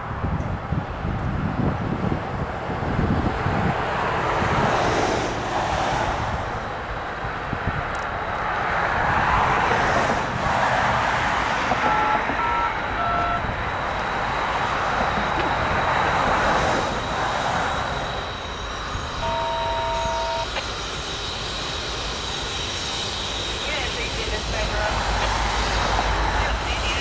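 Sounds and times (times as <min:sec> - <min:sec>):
wind rushing over microphone: 0:00.0 - 0:19.3
distant two-note train horn: 0:19.2 - 0:20.6.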